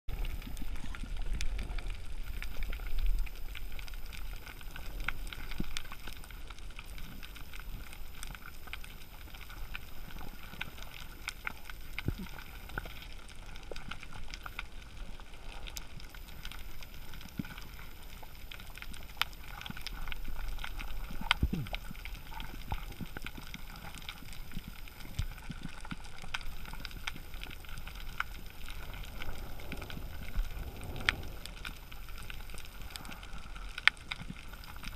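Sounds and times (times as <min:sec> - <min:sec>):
low rumble of water: 0:00.1 - 0:34.9.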